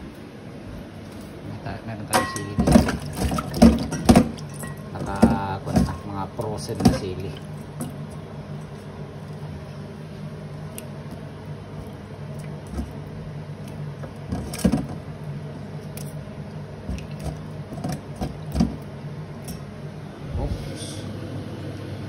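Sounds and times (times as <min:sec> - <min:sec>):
steady low hum: 0:00.0 - 0:22.0
splashing in steel bowl: 0:02.2 - 0:09.5.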